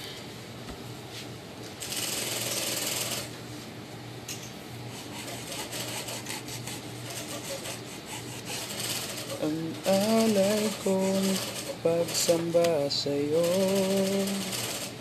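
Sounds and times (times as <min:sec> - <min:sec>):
tool scraping leather: 0:04.9 - 0:08.8.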